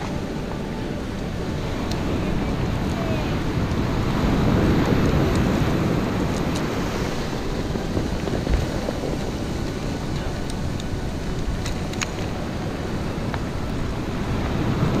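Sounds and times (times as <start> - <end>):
surf washing over cobble beach: 0.0 - 15.0
wind on microphone: 0.0 - 15.0
small clicks: 8.2 - 12.6.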